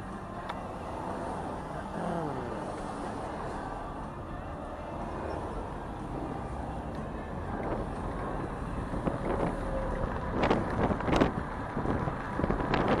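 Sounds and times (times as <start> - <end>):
wind over microphone: 7.5 - 13.0.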